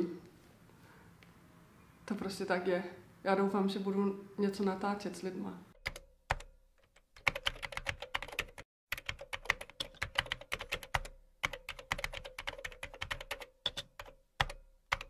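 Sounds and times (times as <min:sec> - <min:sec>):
typing on computer keyboard: 0:05.8 - 0:15.0.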